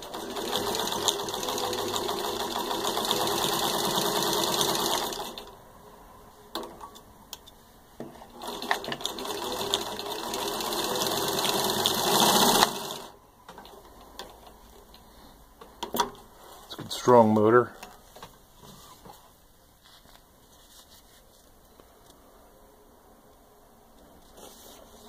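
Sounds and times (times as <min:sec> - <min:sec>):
sewing machine stitching: 0:00.0 - 0:05.5, 0:08.3 - 0:13.1.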